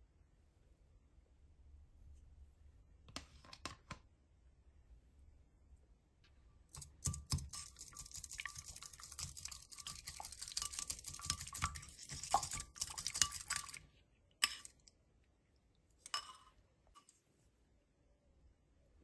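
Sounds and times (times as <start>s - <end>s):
whisk clicking against bowl: 6.7s - 13.8s.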